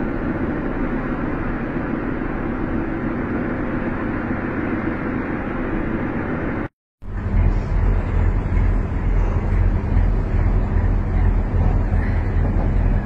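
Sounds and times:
metro train running: 0:00.0 - 0:13.0.

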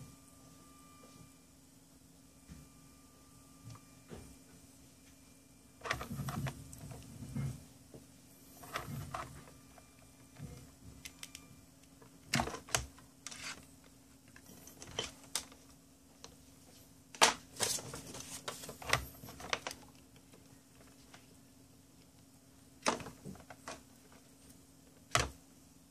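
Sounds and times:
steady low hum: 0:00.0 - 0:25.9
cables shifting on desk: 0:05.8 - 0:07.6, 0:08.6 - 0:11.4, 0:12.0 - 0:13.7, 0:14.3 - 0:16.3, 0:17.2 - 0:21.3.

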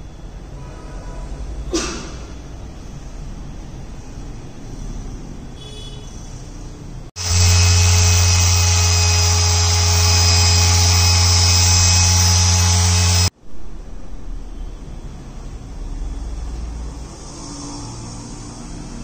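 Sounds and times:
electric motor buzzing: 0:07.2 - 0:13.3.

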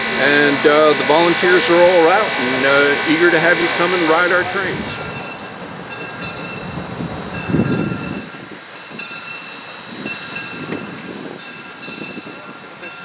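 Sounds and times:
high ringing tone: 0:00.0 - 0:06.6
steam locomotive approaching: 0:00.0 - 0:13.0.

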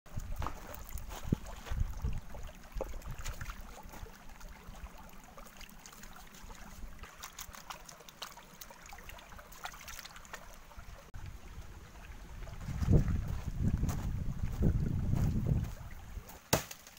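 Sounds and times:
stream trickling over stones: 0:00.1 - 0:16.9
hands scrubbing stone in water: 0:00.2 - 0:10.7.

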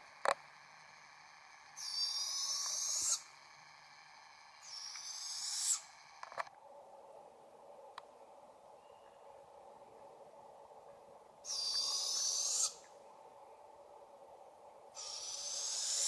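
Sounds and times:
young owls raspy calls: 0:01.7 - 0:06.2, 0:11.4 - 0:12.9, 0:14.9 - 0:16.0.

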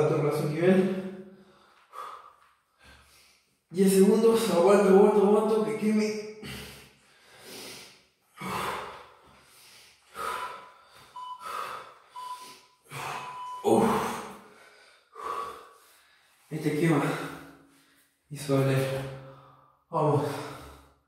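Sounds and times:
man breathing hard: 0:01.2 - 0:03.6, 0:06.4 - 0:18.2
faint short beeps: 0:12.2 - 0:12.6, 0:13.2 - 0:13.7.

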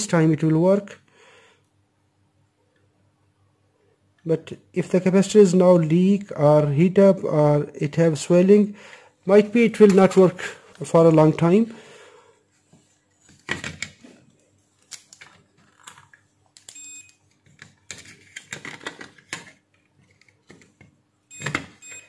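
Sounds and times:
clicks and rustling of handling: 0:13.2 - 0:21.7
multimeter beep: 0:16.7 - 0:17.2, 0:21.3 - 0:22.0.

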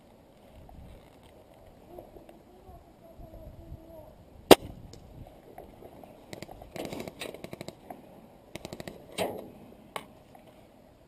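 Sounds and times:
loud sharp crack: 0:04.5 - 0:04.8.

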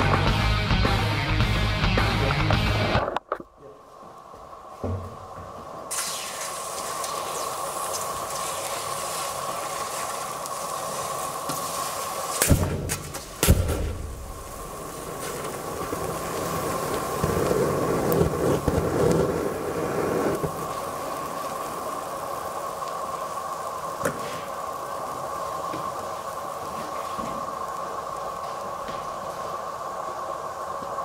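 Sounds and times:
burning gas rushing out: 0:02.0 - 0:31.0
molten metal hissing: 0:03.6 - 0:31.0
lighter bursting with sharp bangs: 0:05.9 - 0:08.7.

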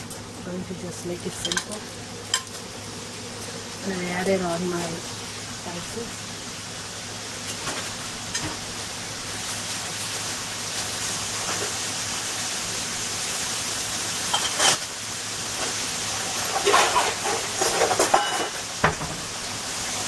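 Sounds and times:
greens sizzling in oil: 0:00.0 - 0:20.0.

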